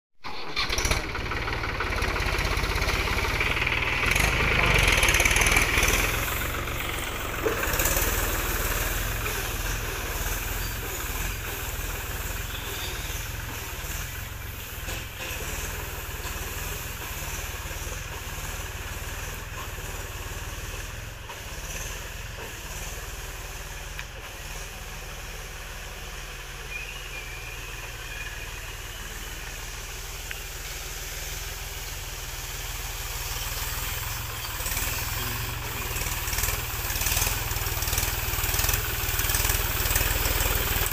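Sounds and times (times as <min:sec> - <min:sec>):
tractor diesel engine running: 0:00.2 - 0:40.9.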